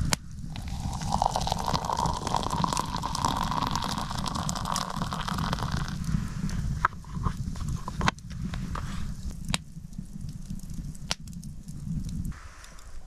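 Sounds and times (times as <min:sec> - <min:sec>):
water pouring into a mug: 0:00.5 - 0:06.0.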